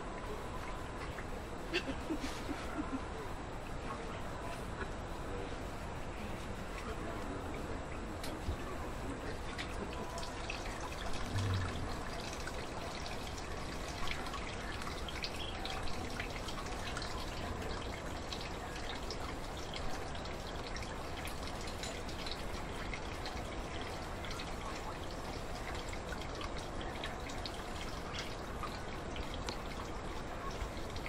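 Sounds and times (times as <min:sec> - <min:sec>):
juice trickling and dripping into pot: 0:09.4 - 0:31.0.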